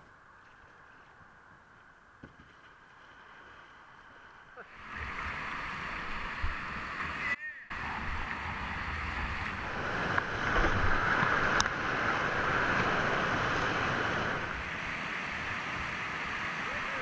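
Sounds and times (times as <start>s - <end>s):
whitewater rushing and churning: 3.4s - 17.0s.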